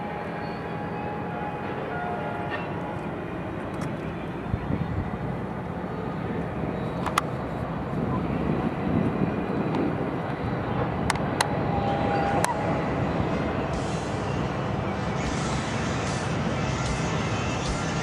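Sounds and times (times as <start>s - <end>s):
city road traffic: 0.0s - 18.0s
distant freight train rumble: 0.0s - 18.0s.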